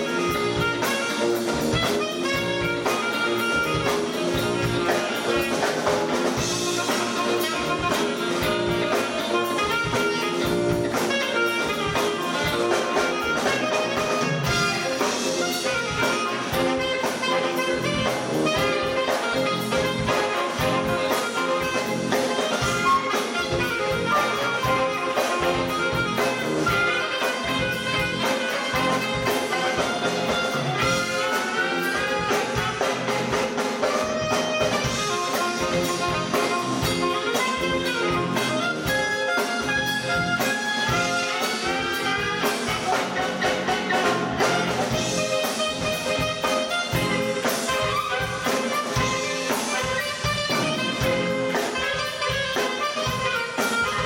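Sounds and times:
live band horn-led instrumental: 0:00.0 - 0:54.0
steady drum beat: 0:00.0 - 0:54.0.

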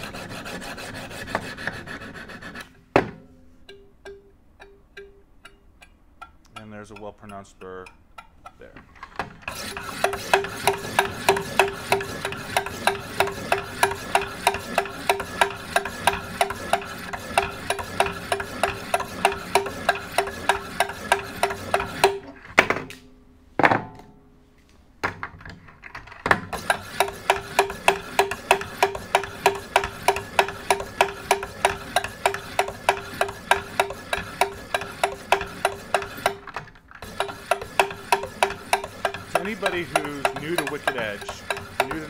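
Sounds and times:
stones scraping knife blade: 0:37.2 - 0:42.0.

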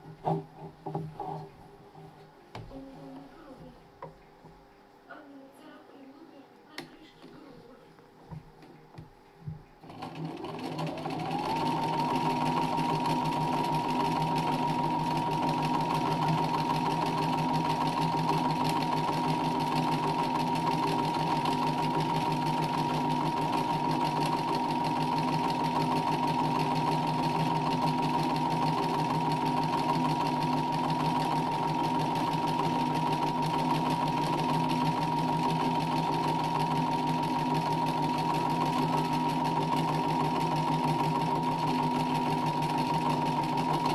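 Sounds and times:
sewing machine stitching: 0:09.8 - 0:43.9.

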